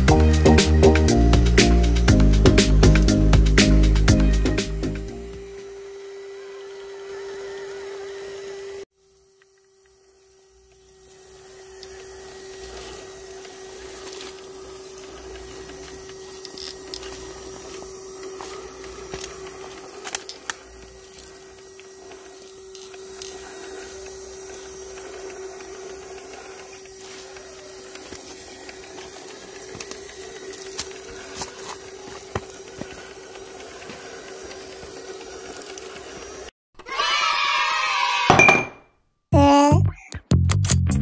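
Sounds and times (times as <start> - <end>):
small electric motor whining: 1.4 - 36.6.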